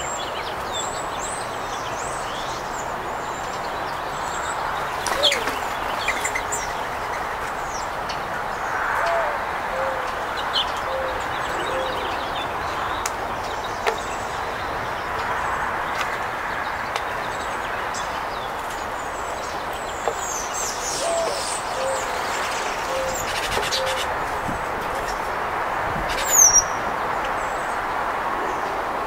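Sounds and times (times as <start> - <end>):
songbird chirps: 0.0 - 8.6, 10.0 - 24.2
doves cooing: 4.8 - 7.2, 9.0 - 10.2, 10.8 - 12.4, 20.9 - 24.2.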